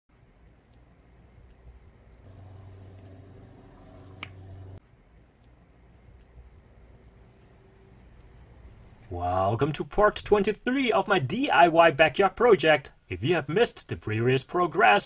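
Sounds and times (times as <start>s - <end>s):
crickets chirping: 0.1s - 9.1s
low steady hum: 0.3s - 12.1s.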